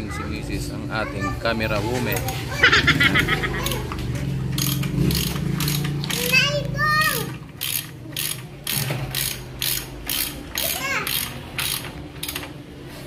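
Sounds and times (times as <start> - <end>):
hand ratchet clicking: 4.5 - 12.6.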